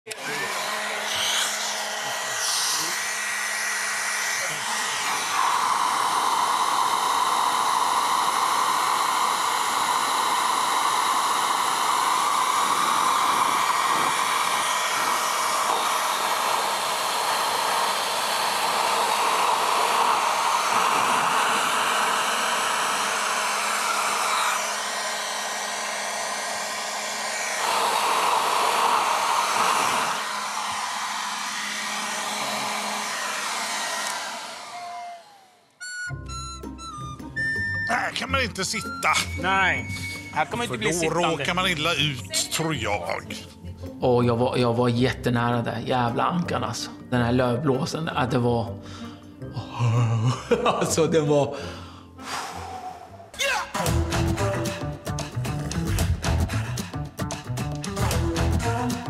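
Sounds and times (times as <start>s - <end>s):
leaf blower running: 0.1s - 42.8s, 53.8s - 57.0s, 57.9s - 59.0s.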